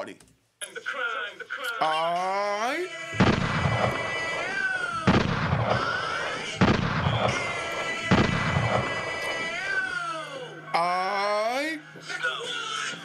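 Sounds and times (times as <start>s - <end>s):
gunshot bangs: 3.2s - 9.3s.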